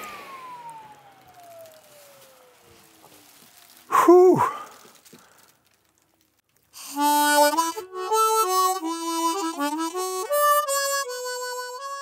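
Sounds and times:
harmonica melody: 6.8s - 12.0s.

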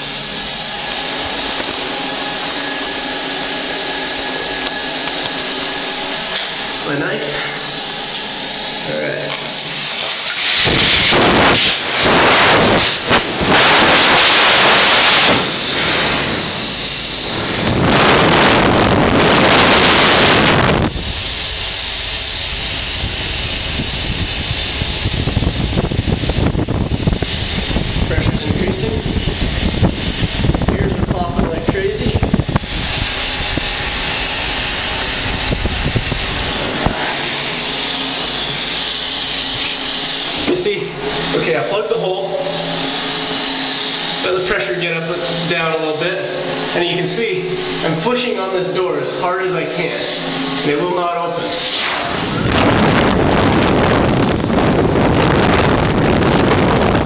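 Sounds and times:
air hissing into tank: 0.0s - 28.4s, 32.2s - 41.6s, 51.3s - 56.6s
low rumble: 10.7s - 40.3s, 52.1s - 57.0s.

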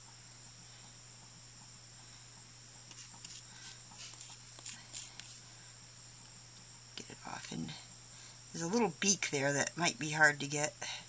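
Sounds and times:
steady low hum: 0.0s - 11.0s
wooden stick scraping paste: 2.9s - 5.4s.

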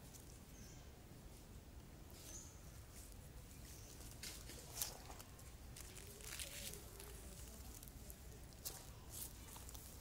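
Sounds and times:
dry leaves rustling and crackling: 2.1s - 10.0s.

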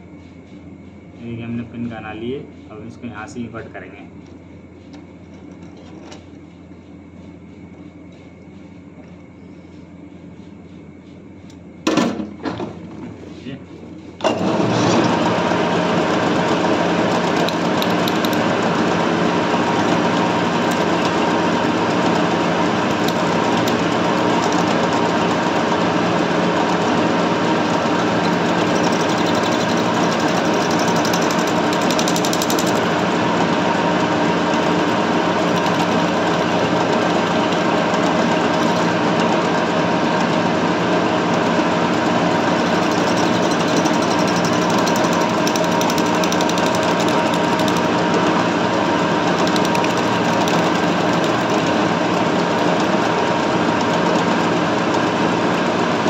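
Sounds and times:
motor hum: 0.0s - 56.0s
metal lathe machining: 14.2s - 56.0s.

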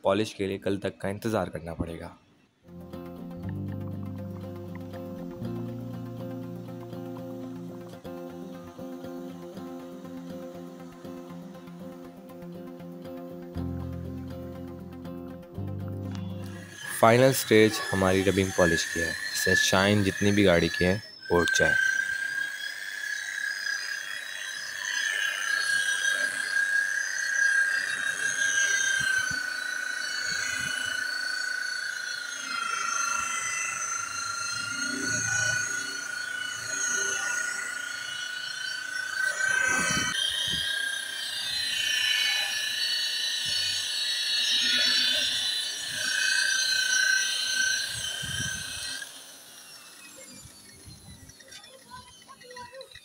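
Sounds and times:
polisher motor whine: 2.7s - 53.0s
buffing pad hiss: 3.2s - 15.4s, 16.2s - 52.8s.

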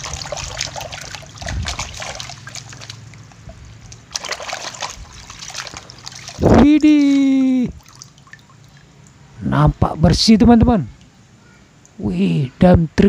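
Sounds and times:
water splashing in a plastic basin: 0.0s - 9.0s.

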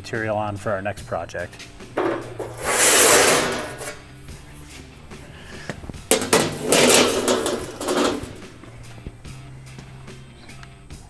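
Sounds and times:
sheet metal scraping over slats: 1.9s - 4.2s, 5.2s - 8.9s
sharp metallic clanks: 2.0s - 4.1s, 6.1s - 8.8s.

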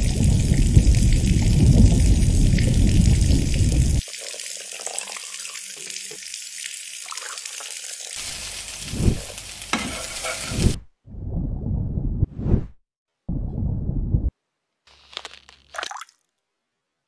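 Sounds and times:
food sizzling in a hot pan: 5.1s - 10.8s.

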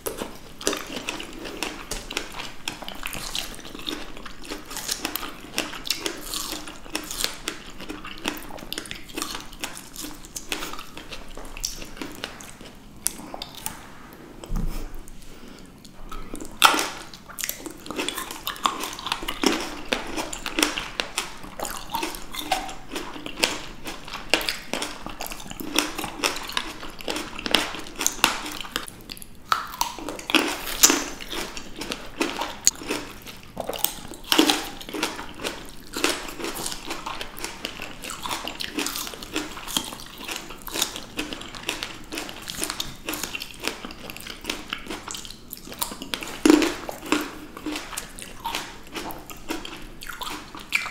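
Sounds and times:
wet juicy chewing: 0.0s - 13.8s, 14.4s - 50.9s.

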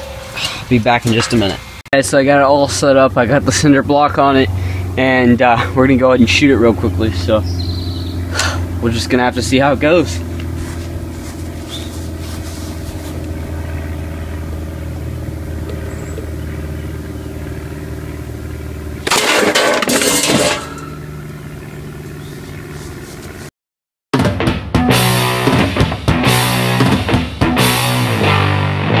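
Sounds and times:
mechanical hum: 0.0s - 23.5s
loud rock music: 24.2s - 29.0s.

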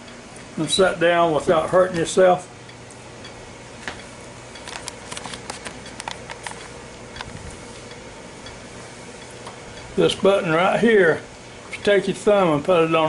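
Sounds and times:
steady low hum: 0.0s - 13.0s
handling clicks and rustles: 4.6s - 7.3s.

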